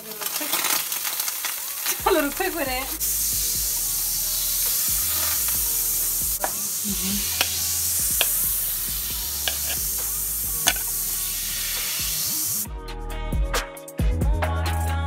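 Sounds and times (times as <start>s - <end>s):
oil and butter sizzling: 0.0s - 12.7s
steel bowl clinking: 7.3s - 8.5s, 9.3s - 11.0s.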